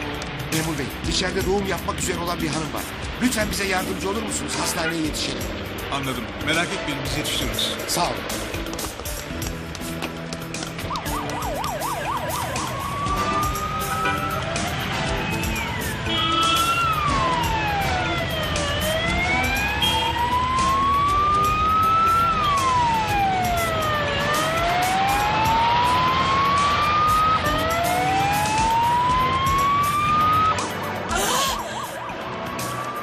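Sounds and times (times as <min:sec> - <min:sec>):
traffic rumble: 0:00.0 - 0:33.0
motorcycle siren wailing: 0:10.8 - 0:33.0.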